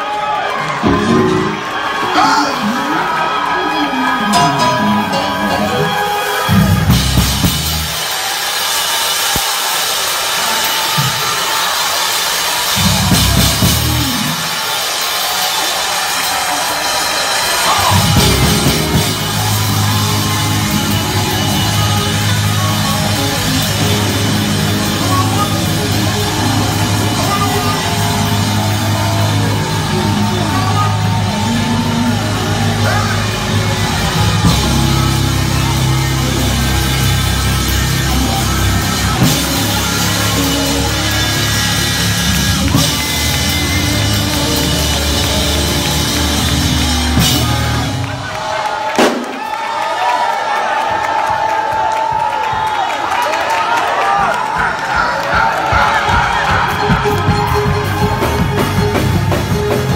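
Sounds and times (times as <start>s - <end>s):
bass guitar: 4.3s - 8.0s, 12.8s - 14.5s, 17.7s - 48.2s, 56.3s - 59.9s
drum kit: 4.4s - 49.6s, 54.5s - 59.9s.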